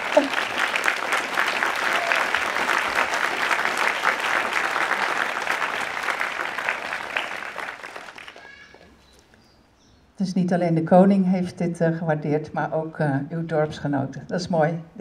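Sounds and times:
audience applauding: 0.0s - 8.9s.

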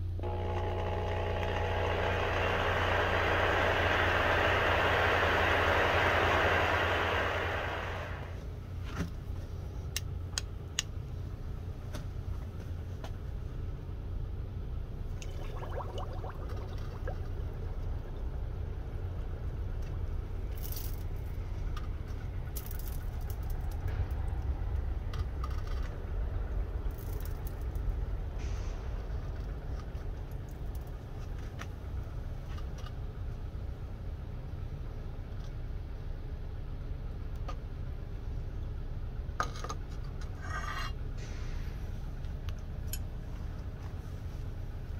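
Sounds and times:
low steady rumble: 0.0s - 44.9s
pops and bubbling: 15.2s - 17.5s.

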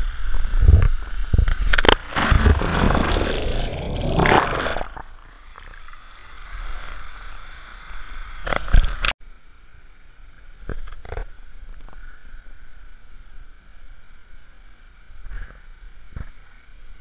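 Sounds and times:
waterfall and stream running: 4.5s - 10.6s.

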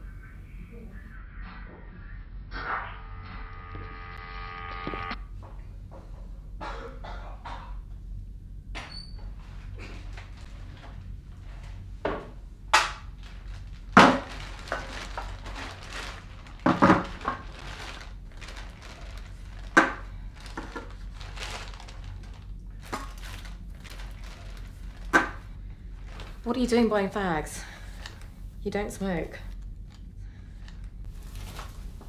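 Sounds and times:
low steady hum: 0.0s - 32.0s
plastic bag rustling: 9.3s - 32.0s.

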